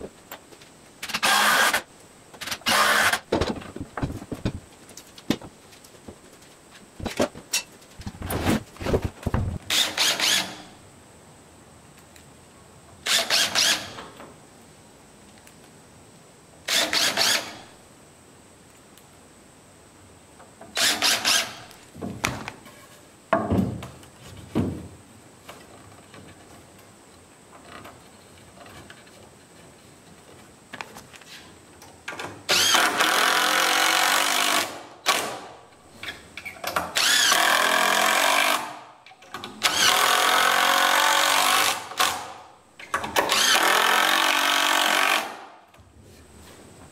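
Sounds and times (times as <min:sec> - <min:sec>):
cordless drill driving screws: 0:01.0 - 0:01.8, 0:02.4 - 0:03.3, 0:09.7 - 0:10.6, 0:13.1 - 0:14.0, 0:20.8 - 0:21.6, 0:32.5 - 0:35.4, 0:37.0 - 0:38.7, 0:39.6 - 0:42.2, 0:43.3 - 0:45.4
boards knocking: 0:03.3 - 0:06.2.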